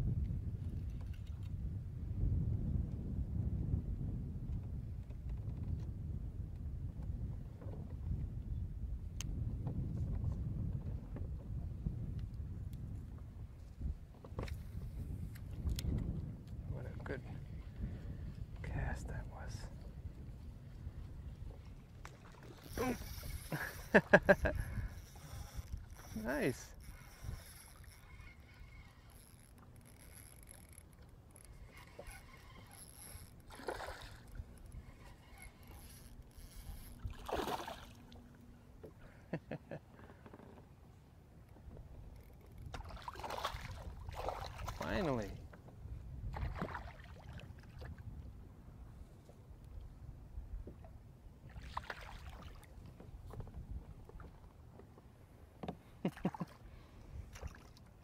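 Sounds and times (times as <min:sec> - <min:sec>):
fishing reel whirring: 0:22.6 - 0:37.1
water splashing: 0:33.5 - 0:34.4, 0:37.0 - 0:38.2, 0:51.5 - 0:52.7.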